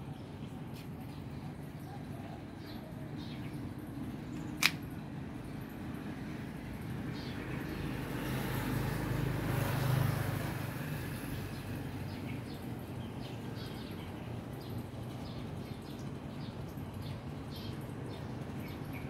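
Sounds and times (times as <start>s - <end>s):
birds chirping: 0.0s - 9.0s, 11.1s - 19.0s
vehicle passing: 6.3s - 13.7s.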